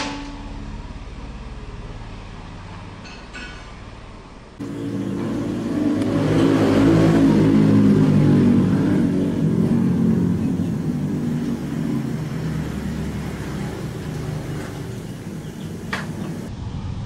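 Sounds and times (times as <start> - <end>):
vehicle engine passing: 4.6 - 17.0.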